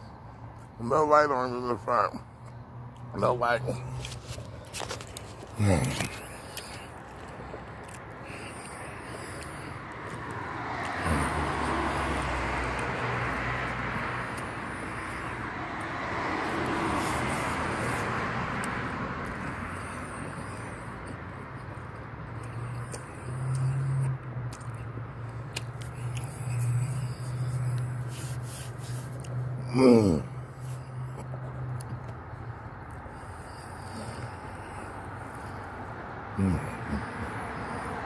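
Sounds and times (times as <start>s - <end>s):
vehicle passing: 0.3s - 38.0s.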